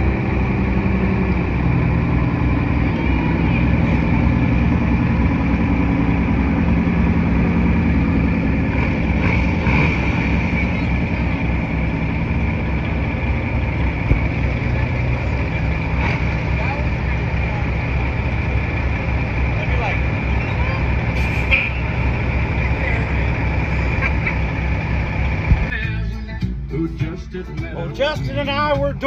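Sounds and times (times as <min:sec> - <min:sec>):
diesel truck engine idling: 0:00.0 - 0:29.0.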